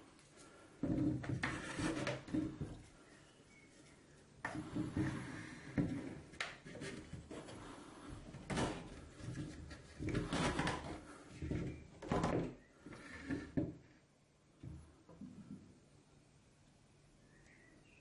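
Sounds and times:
wooden knocks and scrapes: 0.8 - 3.0, 4.4 - 13.9.

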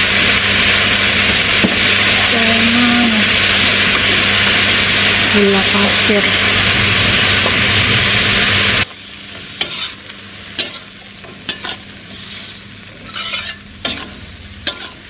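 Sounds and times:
beans sizzling in a wok: 0.0 - 15.0
loud steady hiss with hum: 0.0 - 15.0
metal ladle scraping a pan: 9.6 - 10.0, 11.5 - 15.0.

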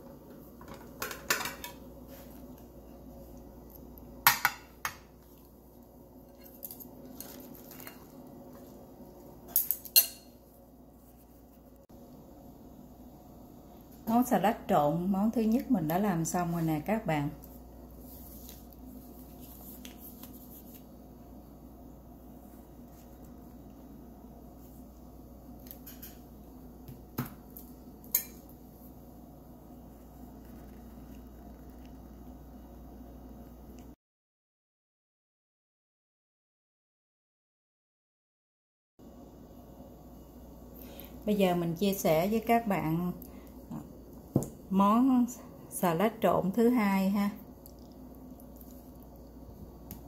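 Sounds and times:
soft scraping and handling: 18.0 - 21.0.

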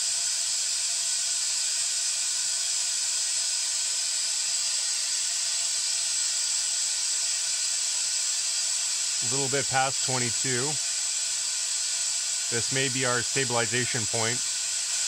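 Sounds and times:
compressed air hissing: 9.2 - 15.0.

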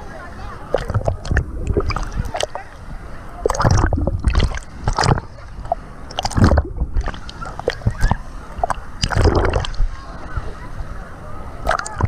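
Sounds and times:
water splashing and sloshing: 0.0 - 12.0
muffled underwater gurgling: 0.6 - 2.8, 3.4 - 10.1, 11.6 - 12.0.

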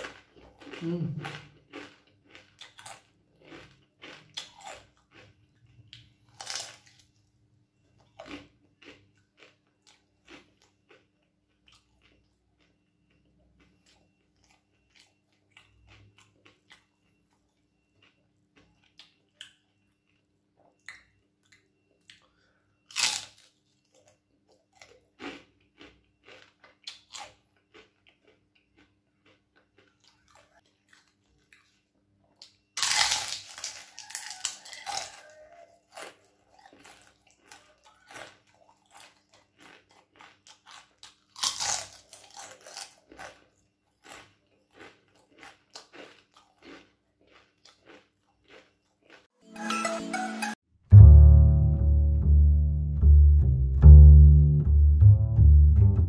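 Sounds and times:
crunching fried food: 0.0 - 49.3
chewing clicks: 8.0 - 31.8, 32.4 - 49.3.

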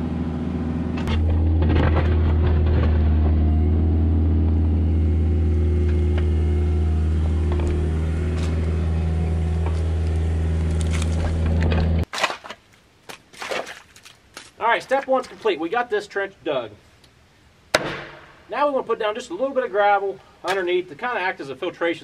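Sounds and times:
excavator diesel engine humming: 0.0 - 12.0.

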